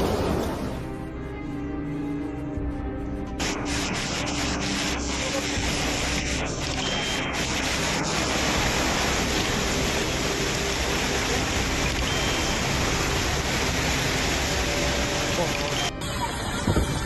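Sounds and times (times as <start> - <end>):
rushing floodwater: 3.4 - 17.0.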